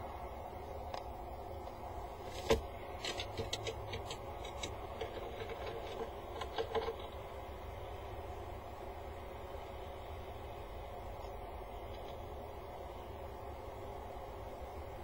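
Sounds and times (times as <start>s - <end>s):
bird feet clicking and tapping: 2.3s - 7.2s.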